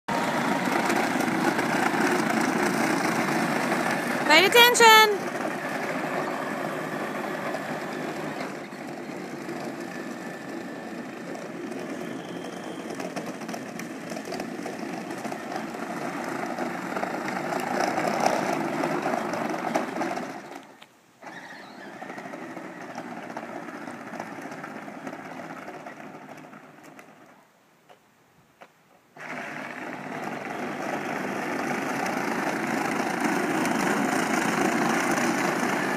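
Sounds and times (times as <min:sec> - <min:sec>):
dune buggy motor running: 0:00.1 - 0:27.5, 0:29.1 - 0:35.9.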